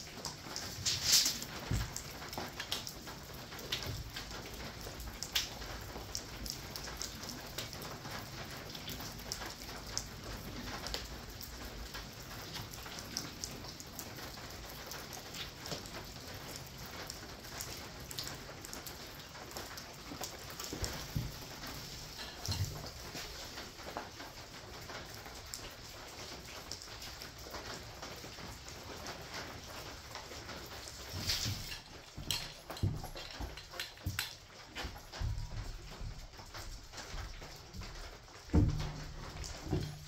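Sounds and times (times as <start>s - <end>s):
rain pattering: 0.0s - 40.0s
drips clicking: 30.7s - 40.0s.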